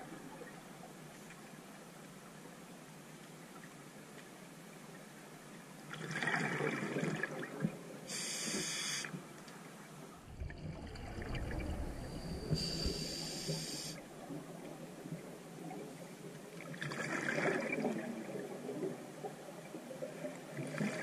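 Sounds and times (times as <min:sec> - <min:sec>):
regulator inhalation hiss: 0:08.1 - 0:09.1, 0:12.5 - 0:14.0
exhaled bubbles rumbling: 0:10.2 - 0:16.0.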